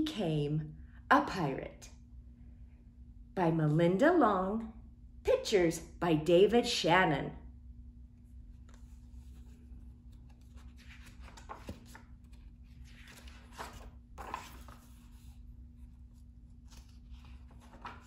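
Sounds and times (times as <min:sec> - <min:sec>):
faint steady hum: 0:00.0 - 0:18.0
book pages rustling: 0:08.3 - 0:18.0.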